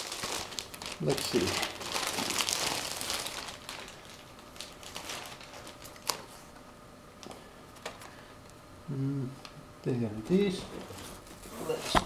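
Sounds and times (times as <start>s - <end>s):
plastic wrapping crinkling: 0.0s - 6.5s.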